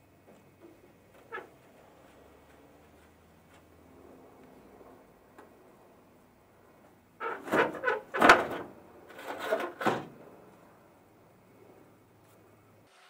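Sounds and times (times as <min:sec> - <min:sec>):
metal fender scraping and clunking: 0:07.2 - 0:10.2.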